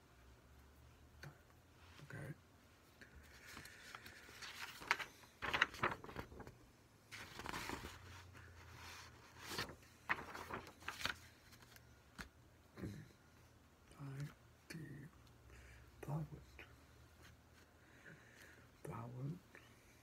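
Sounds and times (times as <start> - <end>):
paper rustling: 3.1 - 12.4.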